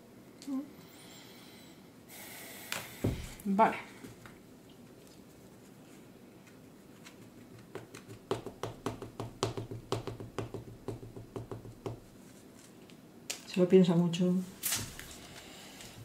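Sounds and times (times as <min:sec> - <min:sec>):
hands tapping on tabletop: 0:07.6 - 0:12.1.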